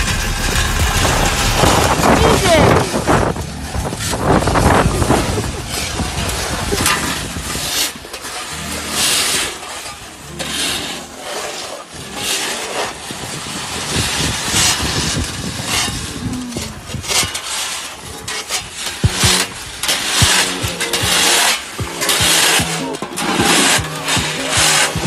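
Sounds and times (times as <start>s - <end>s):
wind rumble on microphone: 0.0s - 8.1s, 12.8s - 17.4s
snow shovels scraping asphalt: 0.0s - 25.0s.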